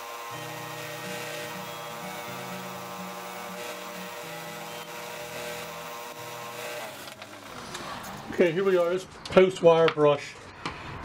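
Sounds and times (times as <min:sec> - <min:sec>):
low sustained background music: 0:00.2 - 0:06.6.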